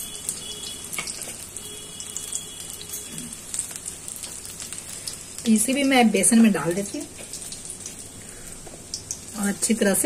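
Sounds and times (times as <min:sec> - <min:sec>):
food deep-frying in hot oil: 0:00.0 - 0:10.0.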